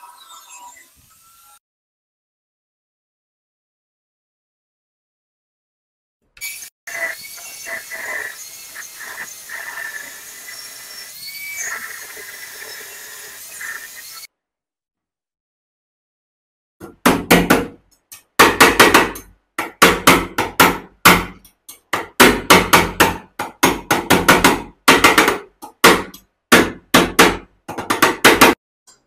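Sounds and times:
hammer tapping on metal: 16.8 - 28.6.

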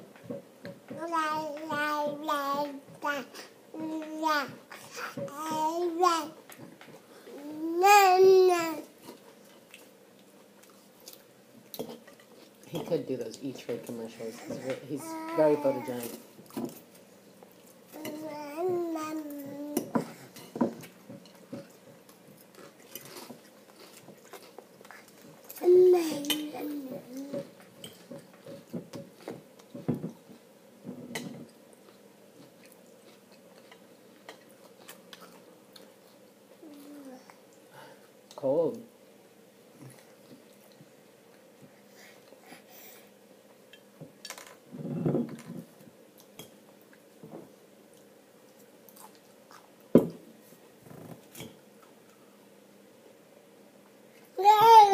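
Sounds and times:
baby chewing: 13.4 - 30.4.

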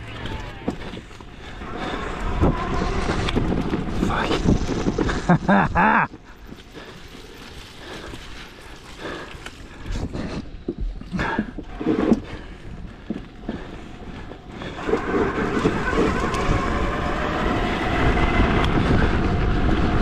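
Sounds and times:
tyres running on gravel: 0.0 - 20.0
wheels rolling over wooden planks: 0.0 - 20.0
wind noise on microphone: 0.8 - 6.3, 9.8 - 20.0.

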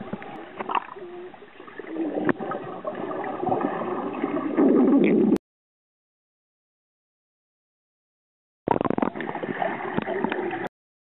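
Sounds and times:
underwater gurgling and bubbling: 0.0 - 5.4, 8.7 - 10.7.

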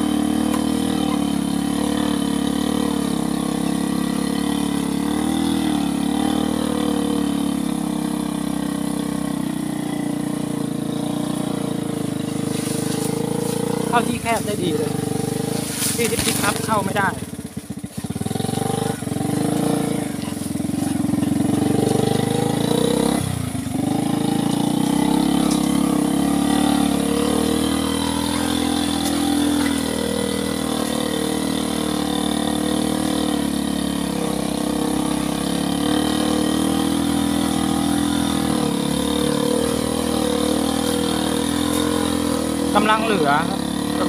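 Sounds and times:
truck engine running: 0.0 - 44.0.

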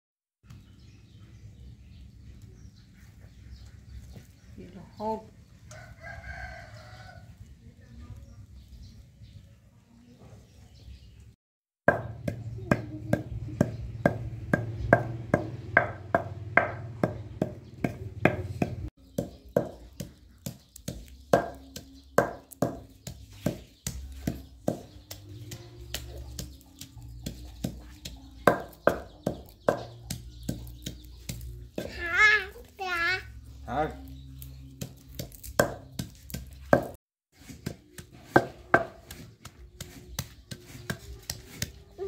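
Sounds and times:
wooden pestle pounding in mortar: 11.9 - 32.0, 34.6 - 42.0.

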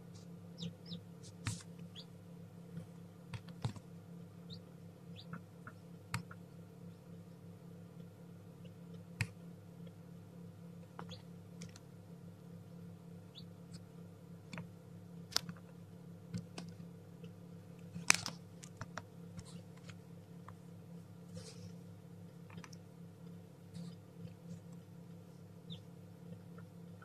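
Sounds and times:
steady low hum: 0.0 - 27.0.

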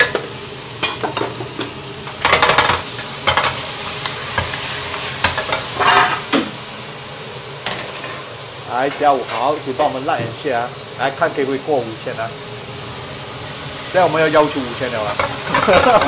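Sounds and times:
food sizzling in a pan: 0.0 - 16.0
food stirred and scraped in pan: 2.3 - 6.3.

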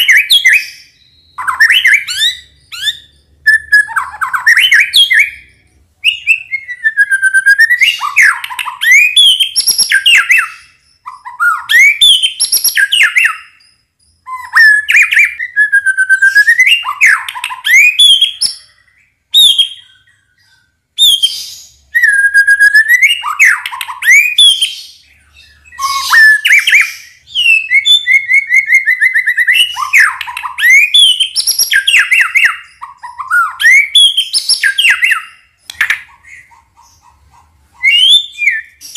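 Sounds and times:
songbird singing whistles and trills: 0.0 - 38.9.

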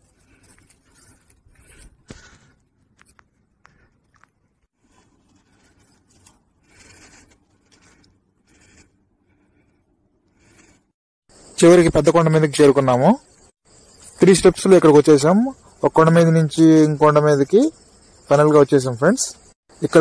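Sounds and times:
footsteps on dry grass and rock: 0.0 - 8.0.

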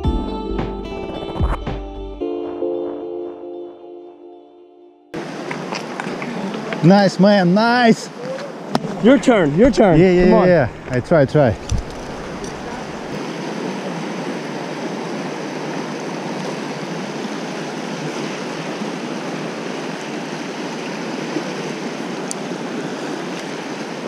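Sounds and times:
river rapid rushing: 5.2 - 24.0.

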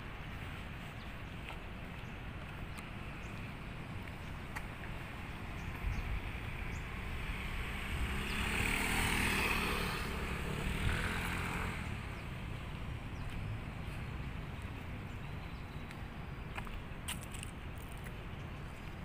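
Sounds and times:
motor scooter passing: 5.2 - 14.0.

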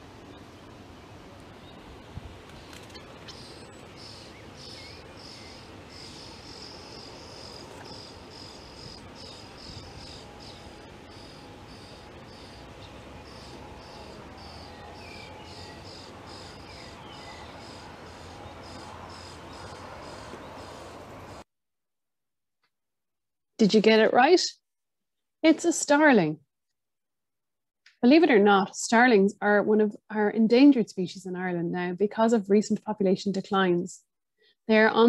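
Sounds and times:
steady background noise: 0.0 - 21.4
bird chicks screeching: 13.2 - 20.9.

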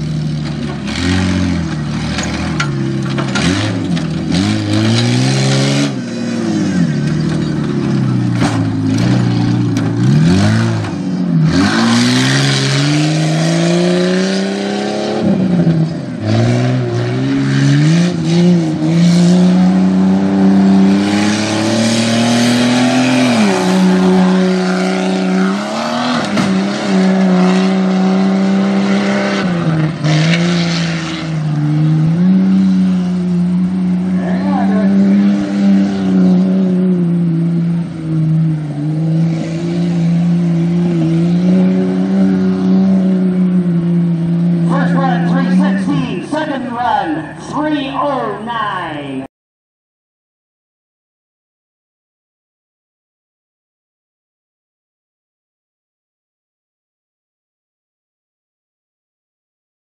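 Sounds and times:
car engine revving: 0.0 - 48.6.

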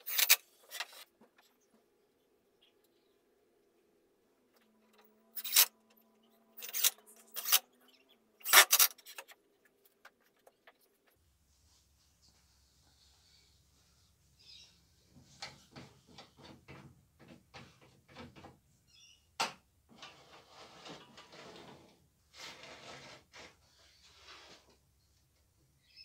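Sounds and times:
scraping: 4.6 - 11.1
workshop knocks and clicks: 15.4 - 18.6.

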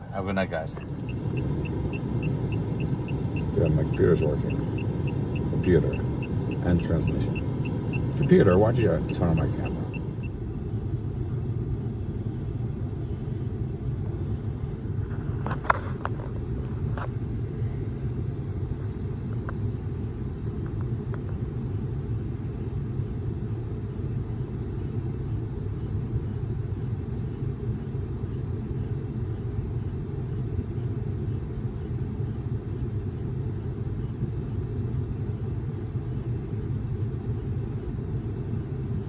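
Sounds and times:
car interior rumble: 0.0 - 24.1.

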